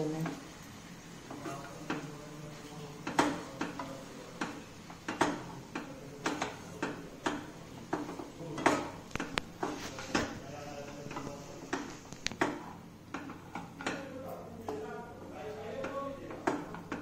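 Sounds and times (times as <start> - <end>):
spatula scraping a pan: 1.2 - 17.0.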